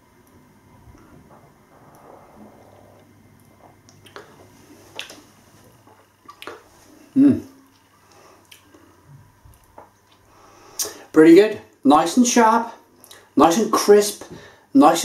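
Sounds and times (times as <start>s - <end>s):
wet lip smacks and tongue clicks: 3.9s - 4.3s, 4.9s - 5.2s, 6.2s - 6.7s, 7.7s - 8.8s
short vocal sound: 7.2s - 7.6s.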